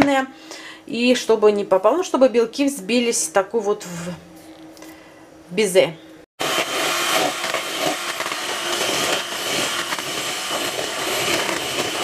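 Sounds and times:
electric hand mixer whisking: 6.4 - 12.0.

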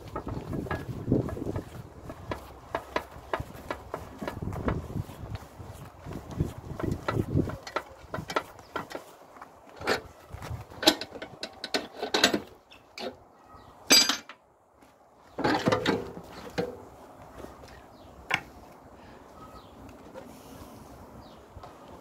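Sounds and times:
metal clanks and scrapes: 10.8 - 13.2, 13.9 - 14.4, 15.4 - 16.8.

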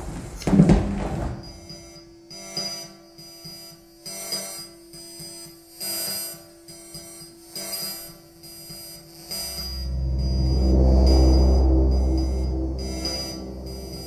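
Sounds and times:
buzzy alarm-like electronic tone: 6.7 - 14.0.

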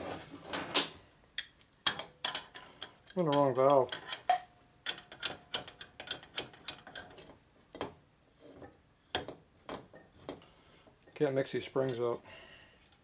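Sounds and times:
metallic clicks of valve springs: 1.4 - 7.2.

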